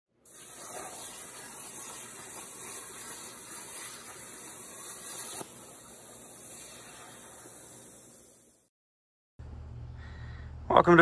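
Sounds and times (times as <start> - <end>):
plasma torch hissing: 0.2 - 8.7.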